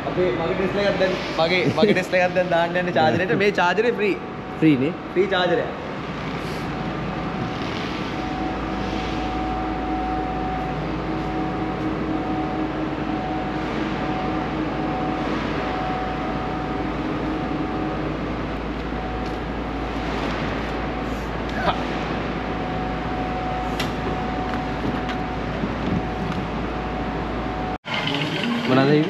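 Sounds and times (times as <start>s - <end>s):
machinery drone and hiss: 0.0s - 29.0s
low hum: 4.1s - 29.0s
high steady tone: 6.7s - 20.0s.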